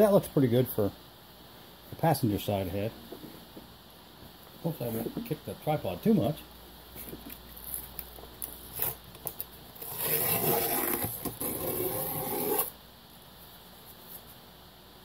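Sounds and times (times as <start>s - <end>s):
tape ripping off metal: 7.6s - 12.8s.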